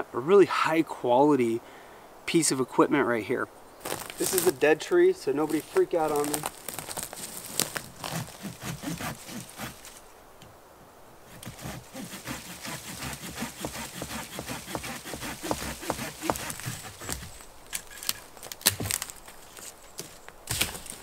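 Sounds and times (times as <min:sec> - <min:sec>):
wood cracking: 0:03.8 - 0:04.6, 0:05.4 - 0:10.0, 0:11.4 - 0:21.0
handsaw sawing dry wood: 0:08.1 - 0:09.9, 0:11.3 - 0:17.3.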